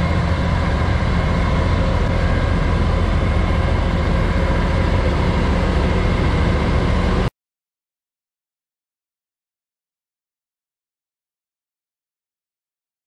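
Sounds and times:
truck diesel engine idling: 0:00.0 - 0:07.3.

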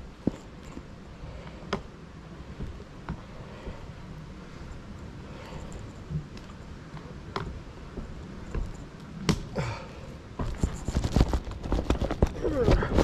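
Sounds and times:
wind rumble on microphone: 0:10.4 - 0:13.0.

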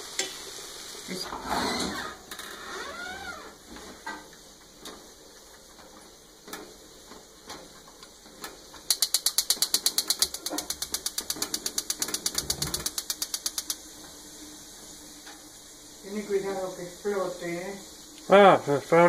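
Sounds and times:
oven spark igniter clicking: 0:08.4 - 0:13.8.

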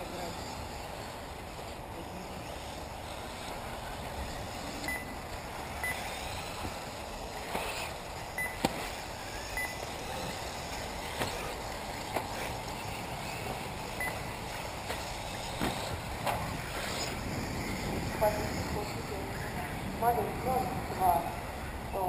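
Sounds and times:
rc buggies motor and tyre noise: 0:00.0 - 0:22.0
short high beeps: 0:04.9 - 0:05.2, 0:05.8 - 0:06.1, 0:08.4 - 0:08.6, 0:09.6 - 0:09.8.

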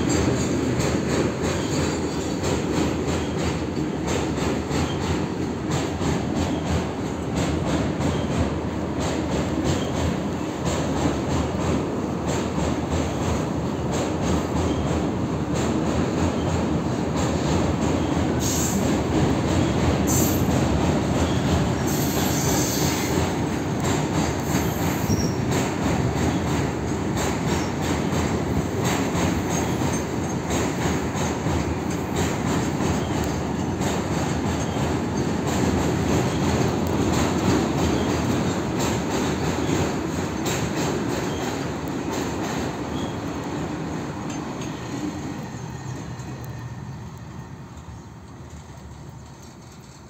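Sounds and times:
freight train wheels clacking: 0:00.0 - 0:50.0
high-pitched wheel squeals: 0:24.6 - 0:25.5.

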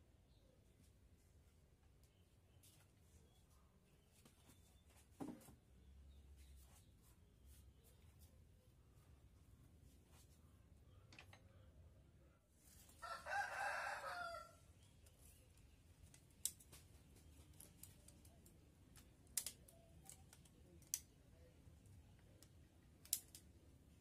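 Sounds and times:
rooster crowing: 0:13.0 - 0:14.6.

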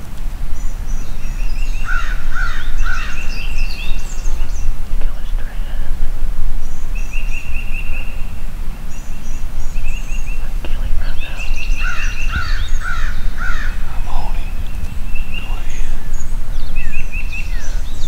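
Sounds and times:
harsh falling bird calls: 0:00.0 - 0:18.0
small birds trilling and chipping: 0:00.0 - 0:18.0
wind rumble on microphone: 0:00.0 - 0:18.0.

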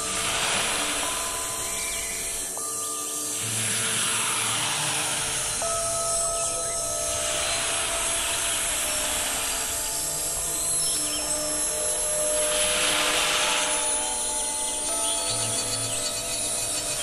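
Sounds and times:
hiss of cutting: 0:00.0 - 0:02.6, 0:03.2 - 0:15.6
router spindle whining: 0:03.2 - 0:17.0.

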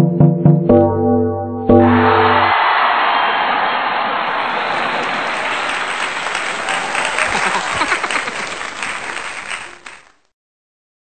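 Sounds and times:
crowd applause: 0:01.8 - 0:10.3
sharp individual claps: 0:02.2 - 0:10.3.

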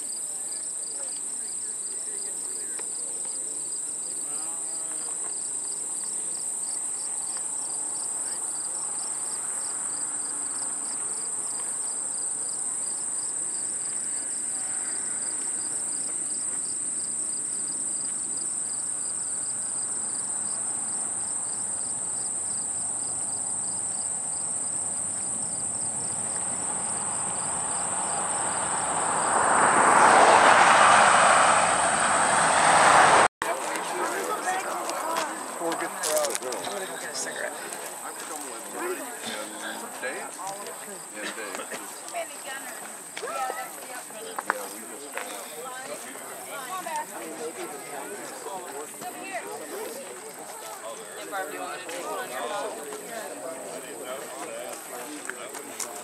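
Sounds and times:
shrill insect chorus: 0:00.0 - 0:32.9
vehicle engines rumbling: 0:04.4 - 0:42.1.

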